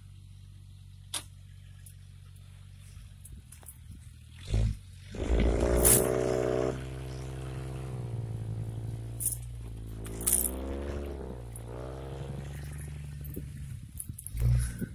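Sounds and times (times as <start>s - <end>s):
suv engine revving under load: 4.3s - 14.9s.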